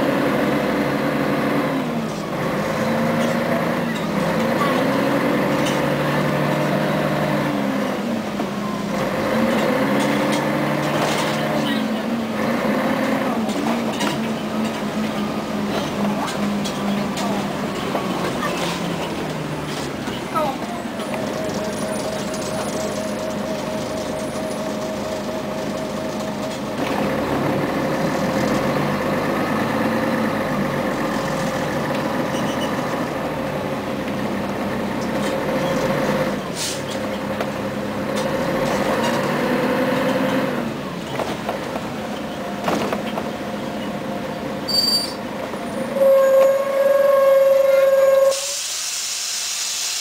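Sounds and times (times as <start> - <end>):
bus engine and transmission whine: 0.0 - 50.0
air hiss: 48.3 - 50.0.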